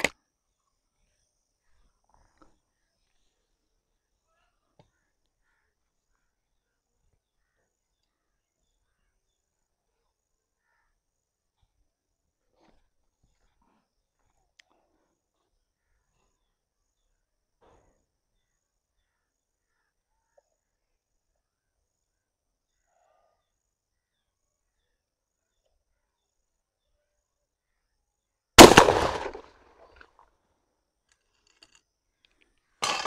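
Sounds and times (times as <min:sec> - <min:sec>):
shotgun shot: 0:28.6 - 0:29.5.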